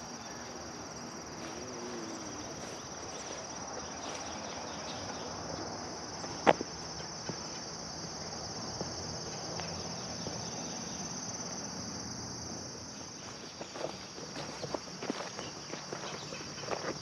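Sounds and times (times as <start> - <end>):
insects chorus: 0.0 - 17.0
footsteps through tall grass: 1.3 - 4.5, 12.4 - 17.0.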